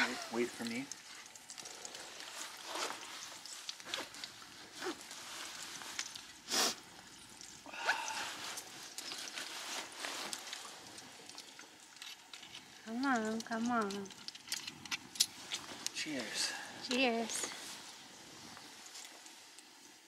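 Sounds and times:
campfire crackling: 0.0 - 20.0
jacket rustling: 2.3 - 6.8.

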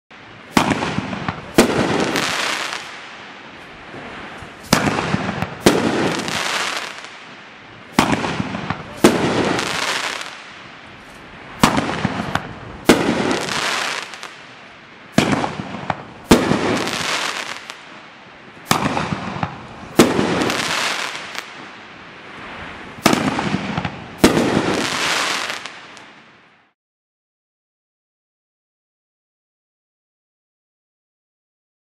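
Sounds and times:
firework crackle: 0.2 - 26.8
firework launch reports: 0.3 - 21.7, 22.5 - 26.2
firework burst bangs: 0.5 - 3.0, 4.5 - 7.2, 7.9 - 10.6, 11.6 - 14.5, 15.1 - 17.8, 18.6 - 21.6, 23.0 - 25.9.

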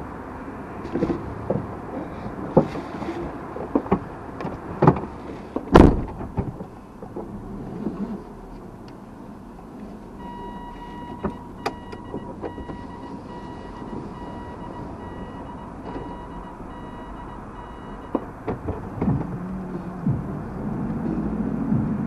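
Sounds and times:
low cabin noise: 0.0 - 22.0
car reversing warning beeps: 10.1 - 20.3.

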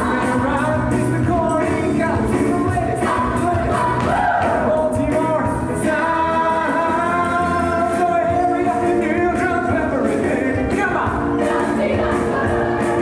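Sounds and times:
instrumental accompaniment: 0.0 - 13.0
people singing show tune: 0.0 - 13.0.

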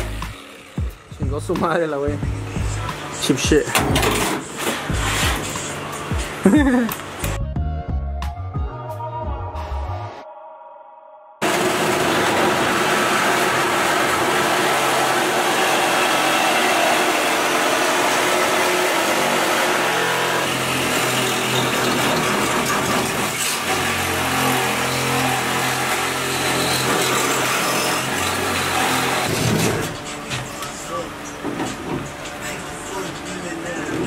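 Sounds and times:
reciprocating saw cutting sheet metal: 4.0 - 5.8, 11.4 - 30.2.

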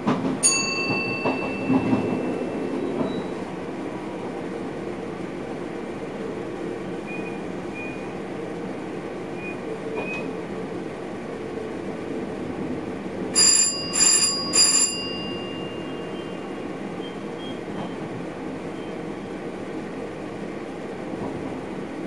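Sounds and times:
train running noise: 0.0 - 22.0
high-pitched bell rings: 0.4 - 2.4, 13.4 - 16.3.

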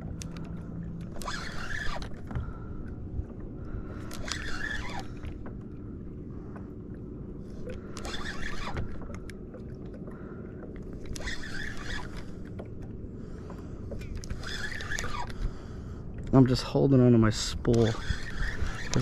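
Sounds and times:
fishing reel drag buzzing: 0.2 - 2.4, 3.9 - 5.5, 7.8 - 9.1, 11.0 - 12.5, 14.0 - 15.7, 17.6 - 19.0.

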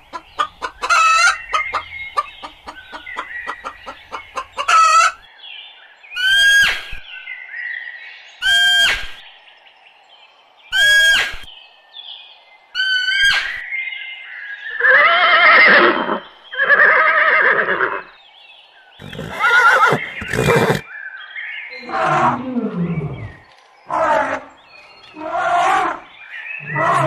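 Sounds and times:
horse whinnying: 14.8 - 18.0, 19.0 - 20.8, 21.8 - 23.3, 26.6 - 27.0.

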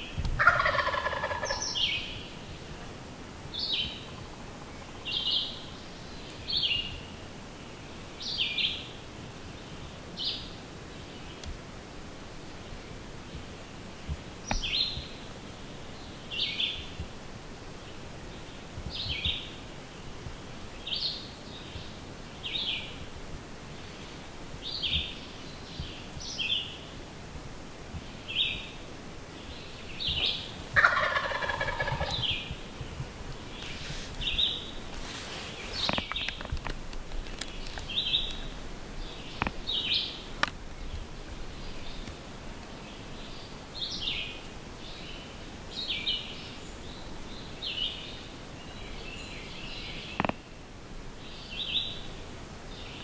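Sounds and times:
songbird chirping: 0.0 - 53.0
turkey gobbling: 0.4 - 1.9, 30.1 - 32.5.

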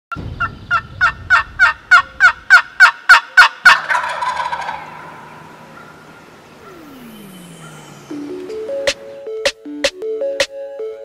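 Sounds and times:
turkey yelping: 0.4 - 6.9.

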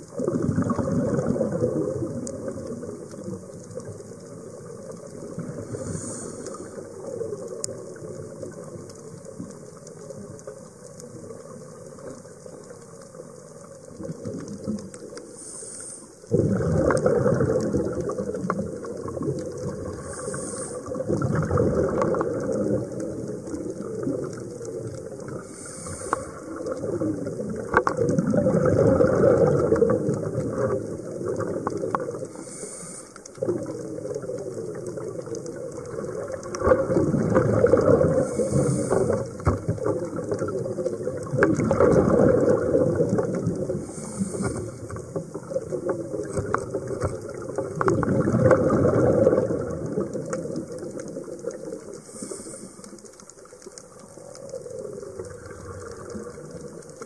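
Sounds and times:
gurgle of exhaled bubbles: 0.0 - 15.4, 16.2 - 57.0
regulator inhalation hiss: 5.6 - 6.9, 15.2 - 16.3, 19.8 - 21.0, 25.4 - 26.6, 32.3 - 33.3, 38.2 - 39.4, 43.8 - 45.0, 52.0 - 53.0.

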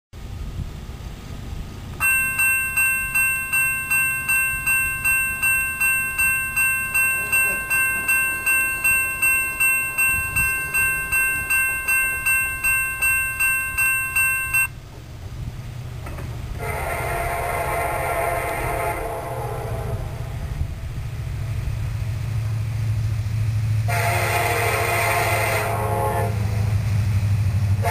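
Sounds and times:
electronic crossing bell ringing: 2.0 - 14.8
train air horn: 16.6 - 20.6, 23.8 - 26.8.

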